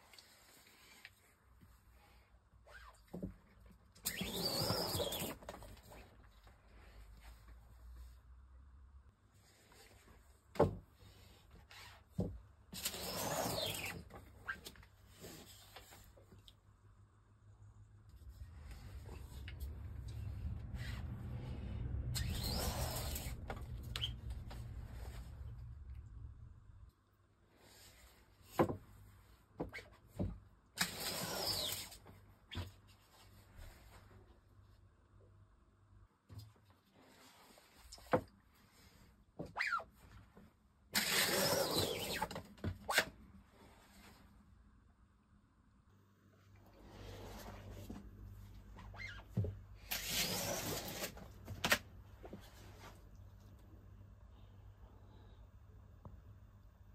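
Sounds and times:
squeegee scraping across mesh: 0:18.2 - 0:25.7.

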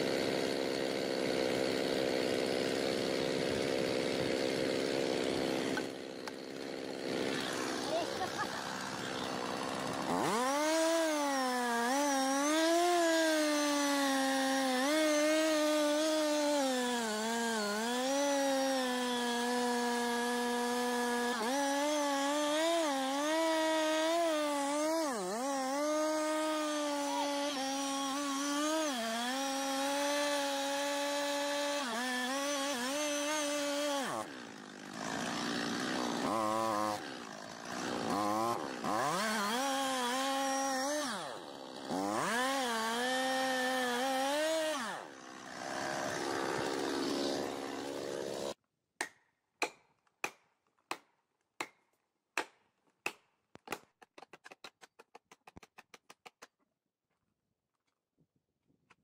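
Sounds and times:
chainsaw cutting wood: 0:00.0 - 0:51.8.

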